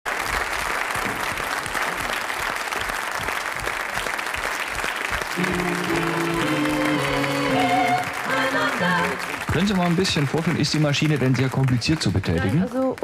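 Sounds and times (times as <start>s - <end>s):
audience applauding: 0.0s - 13.0s
music with held notes: 5.4s - 9.2s.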